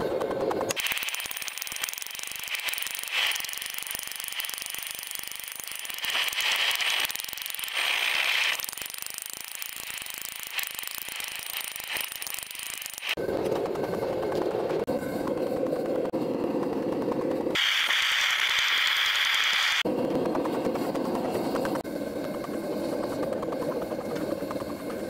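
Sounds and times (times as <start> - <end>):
pneumatic air hammer on steel: 0.7 - 13.2.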